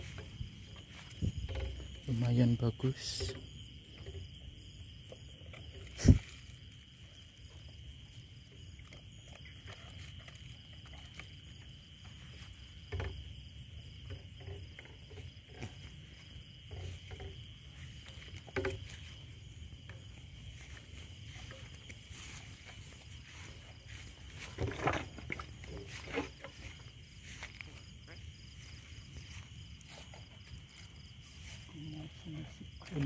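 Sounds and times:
night insects trilling: 0:00.0 - 0:33.0
footsteps through grass: 0:20.2 - 0:32.0.

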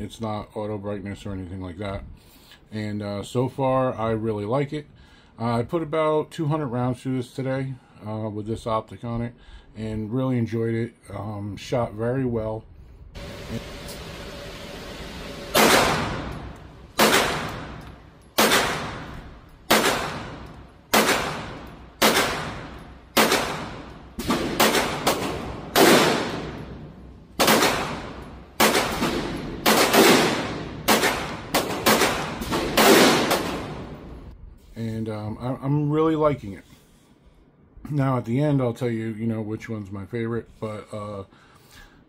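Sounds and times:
pistol shots echoing indoors: 0:15.2 - 0:34.3.

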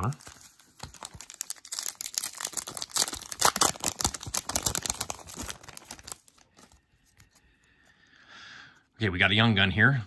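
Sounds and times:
wrapper being torn and crinkled: 0:00.0 - 0:06.7.

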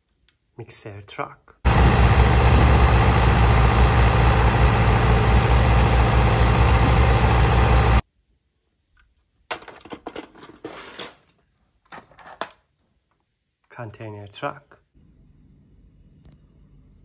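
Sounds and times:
diesel engine idling: 0:01.7 - 0:08.0
toy trucks clicking and rattling: 0:09.5 - 0:12.6.

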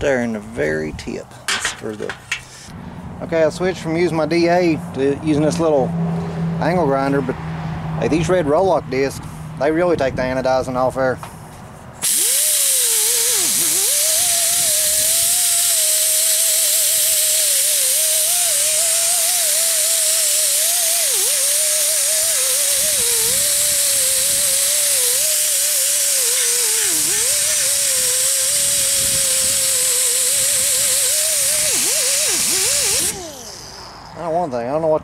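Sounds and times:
angle grinder whining on metal: 0:12.0 - 0:34.2.

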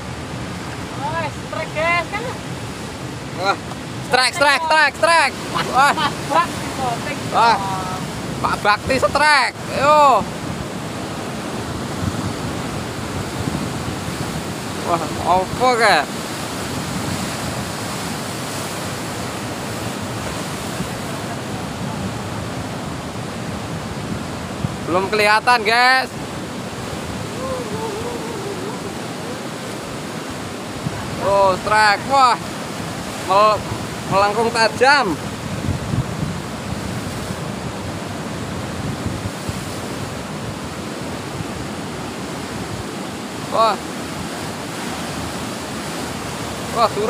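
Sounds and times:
wind: 0:00.0 - 0:47.0
waves breaking against rocks: 0:00.1 - 0:47.0.

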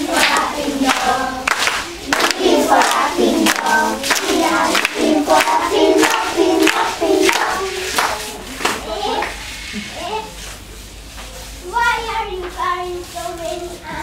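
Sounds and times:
girls singing in unison: 0:00.0 - 0:08.4
sharp beats: 0:00.0 - 0:08.6.

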